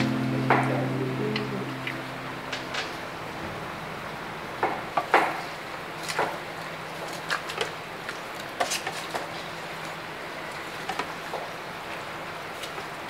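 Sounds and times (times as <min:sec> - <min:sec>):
steady low hum: 0:00.0 - 0:06.8.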